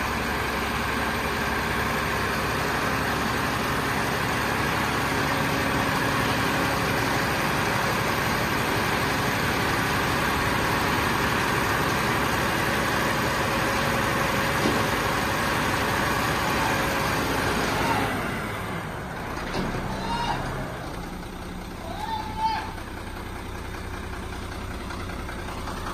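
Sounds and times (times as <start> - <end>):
diesel truck engine running: 0.0 - 25.9.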